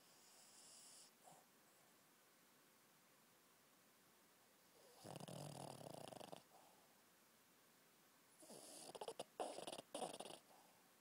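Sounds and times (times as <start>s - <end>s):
dog snoring: 0.0s - 1.4s, 4.8s - 6.6s, 8.4s - 10.5s.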